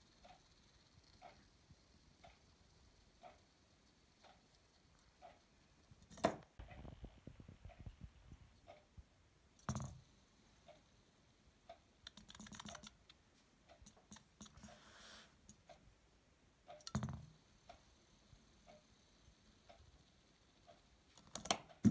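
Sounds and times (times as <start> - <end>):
spinning top clicking and rattling: 0.0 - 6.7, 9.6 - 11.2, 12.0 - 13.2, 16.7 - 21.9
faint ticking: 0.0 - 21.9
spinning top knocking: 6.0 - 6.9, 9.6 - 10.2, 16.8 - 21.9.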